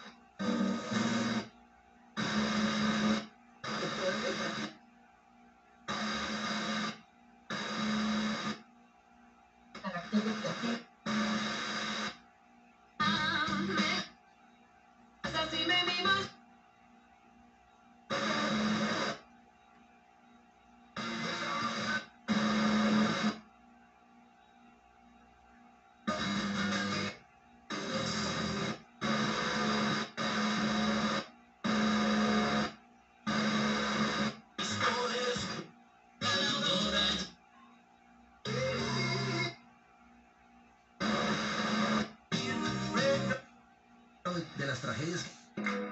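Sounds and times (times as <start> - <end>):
radio station snippets: 0.0 - 1.6, 2.2 - 4.8, 5.9 - 8.6, 9.8 - 12.2, 13.0 - 14.2, 15.2 - 16.4, 18.1 - 19.3, 21.0 - 23.4, 26.1 - 32.7, 33.3 - 37.4, 41.0 - 43.5, 44.3 - 45.9.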